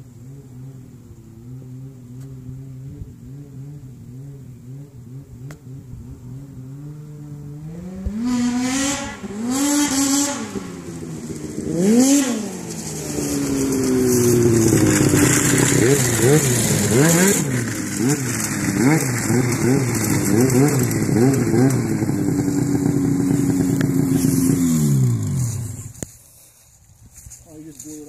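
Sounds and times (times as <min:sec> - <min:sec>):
snowmobile engine revving: 0:00.4 - 0:26.0.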